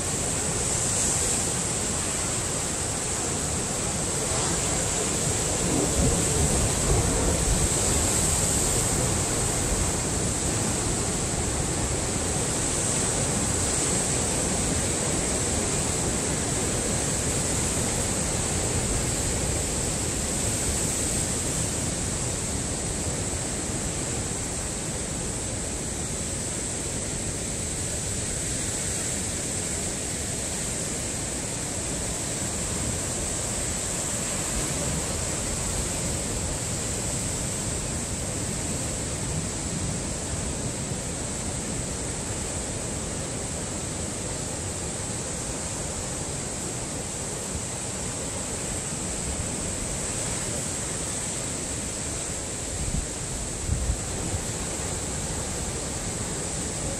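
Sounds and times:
ocean surf breaking over rocks: 0.0 - 56.9.

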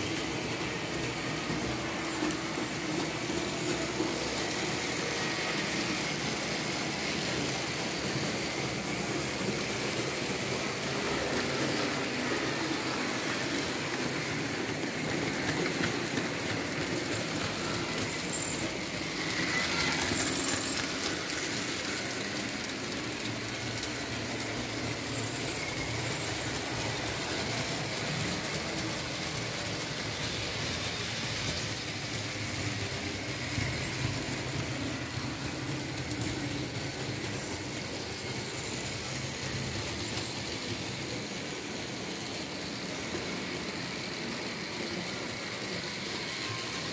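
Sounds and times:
model train motor hum and rattle: 0.0 - 46.9
wheel squeal: 16.8 - 21.9, 24.7 - 28.3, 45.9 - 46.9.

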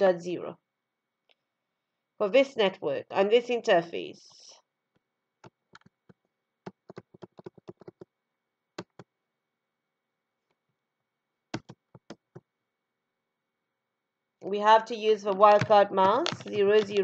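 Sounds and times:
faint keyboard keystrokes: 6.7 - 8.1, 15.3 - 17.0.

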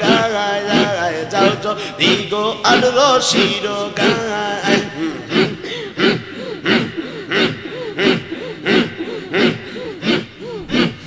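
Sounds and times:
men chanting rhythmically: 0.0 - 11.0.

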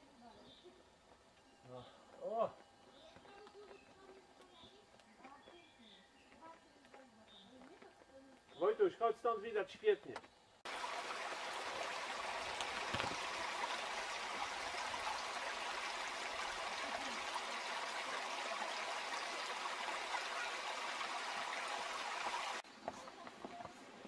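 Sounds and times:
stream trickling over stones: 10.6 - 22.6.

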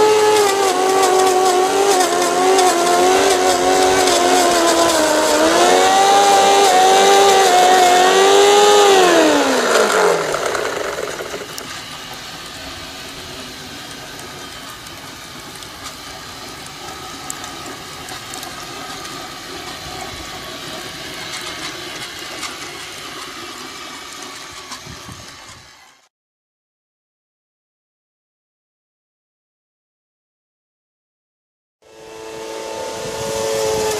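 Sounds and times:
ticks and rattles from track: 0.0 - 26.1
whining model train motors: 0.0 - 26.1, 31.8 - 33.9.

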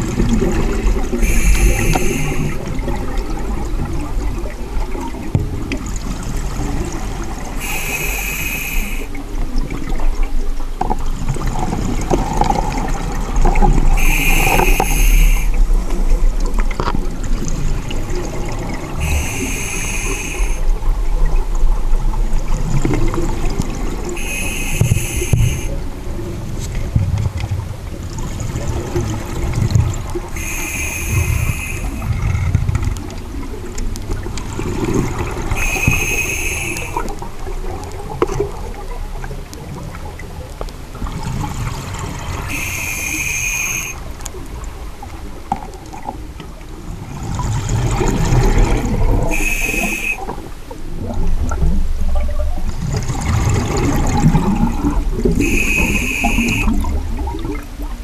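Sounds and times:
exhaled bubbles gurgling: 0.0 - 58.0
hissing regulator inhalation: 1.2 - 2.7, 7.6 - 9.2, 14.0 - 15.6, 19.0 - 20.6, 24.2 - 25.8, 30.4 - 32.2, 35.5 - 37.1, 42.5 - 44.0, 49.2 - 50.3, 55.4 - 56.8.

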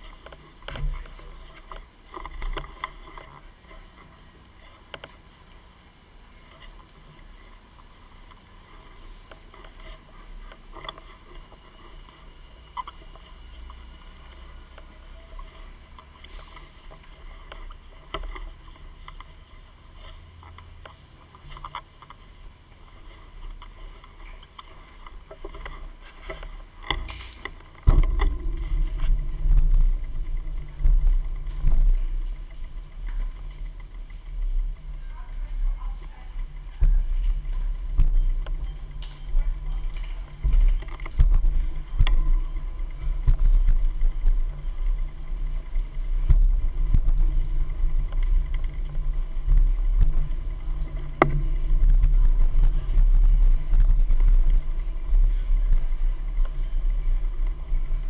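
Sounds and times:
crowd walking: 0.0 - 58.0
loud low rumble: 27.9 - 58.0.

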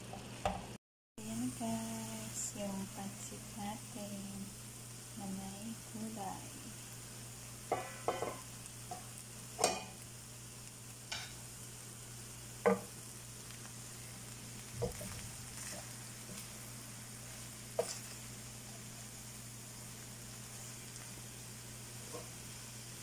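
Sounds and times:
low steady hum: 0.0 - 23.0
noodles sizzling in a pan: 0.0 - 23.0
utensil scraping a pan: 17.7 - 18.3, 22.0 - 22.4.

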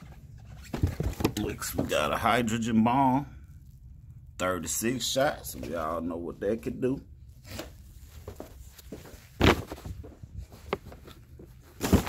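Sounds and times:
boxes knocking and rustling: 0.0 - 2.1, 7.4 - 12.0
heavy thud: 9.4 - 10.1.

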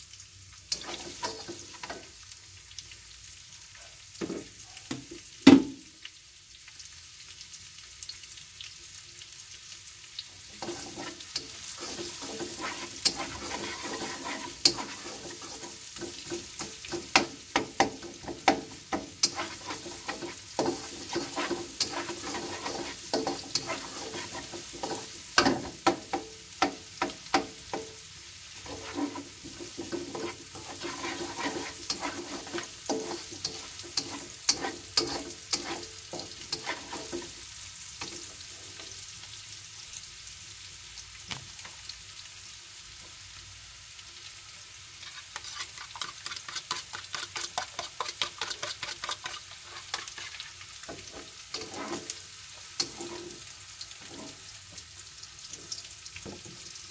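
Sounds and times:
oil sizzling: 0.0 - 56.9
spatula scraping a wok: 0.7 - 2.1, 10.5 - 38.9, 44.9 - 54.7.

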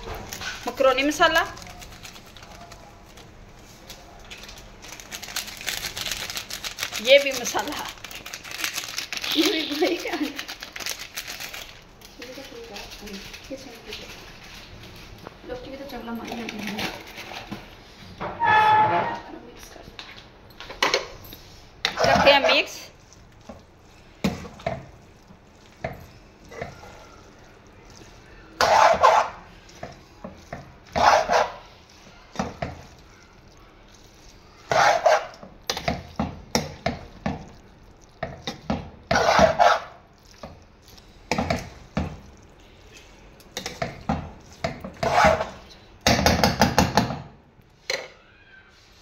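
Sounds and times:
metal spoon scraping a frying pan: 28.6 - 29.5, 30.9 - 31.6, 34.6 - 36.0, 38.5 - 39.9, 42.9 - 45.7.

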